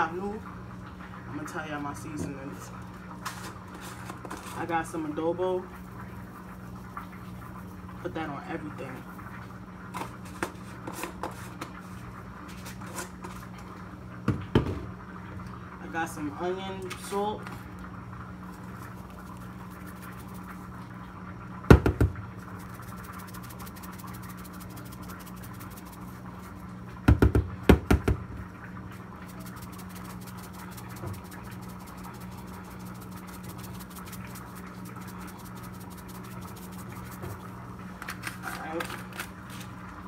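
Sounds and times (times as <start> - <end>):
steady low hum: 15.2 - 40.0.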